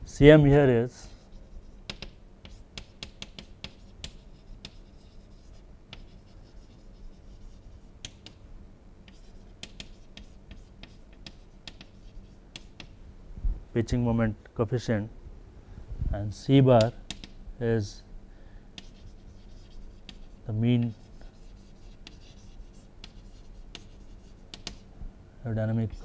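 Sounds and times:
low room hum: 0.0 - 26.0
chalk tapping and scraping: 1.0 - 8.4, 9.0 - 13.0, 18.8 - 24.9.

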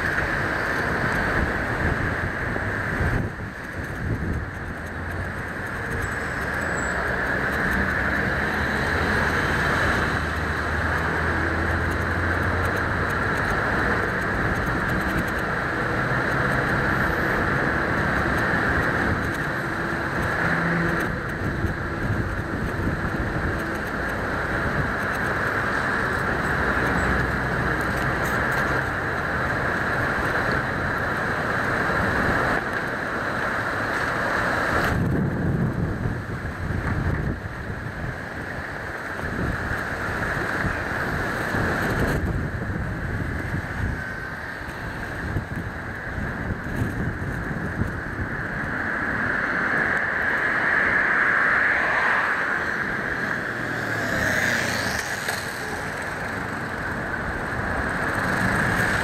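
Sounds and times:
road traffic: 0.0 - 59.0
passing car engine hum: 50.5 - 59.0.

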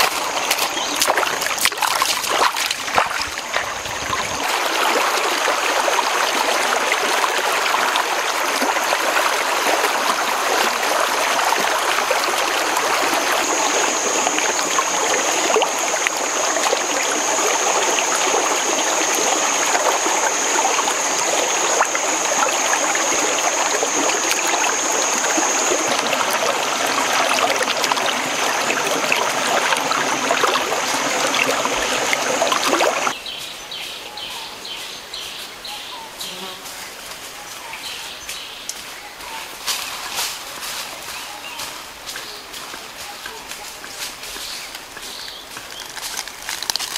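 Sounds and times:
stream babbling over rocks: 0.0 - 33.2, 44.7 - 46.9.

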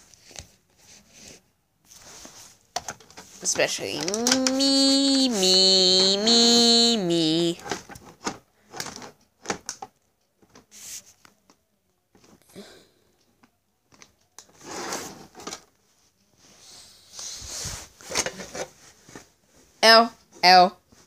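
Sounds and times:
rustling: 0.0 - 6.1.

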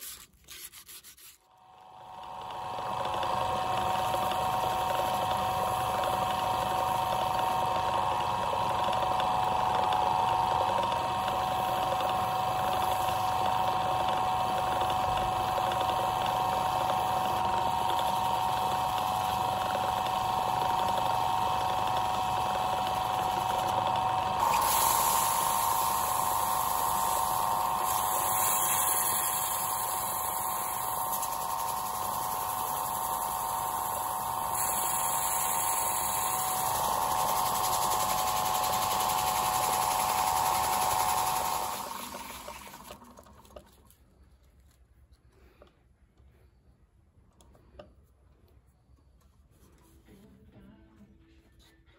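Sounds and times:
wood lathe motor whine: 1.5 - 43.9
hiss: 24.4 - 31.3.

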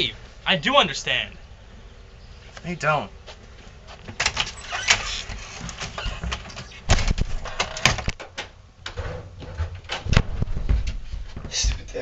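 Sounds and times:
knocks and clatters: 4.1 - 11.8.

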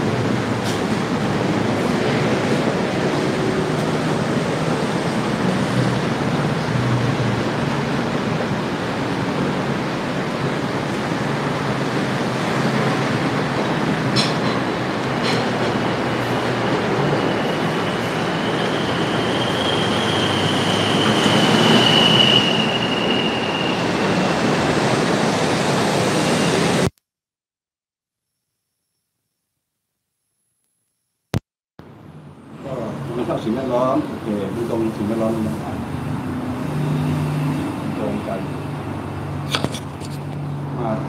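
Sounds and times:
passing vehicles: 0.0 - 26.8, 31.8 - 41.0
long high squeal: 16.6 - 24.5.

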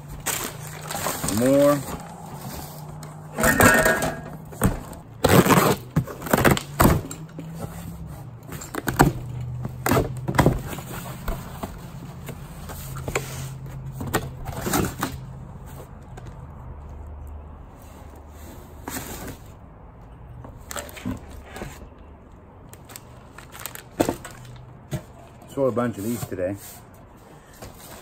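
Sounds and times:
cardboard crackles and knocks: 0.0 - 3.1
box cutter slitting tape: 5.2 - 7.0.

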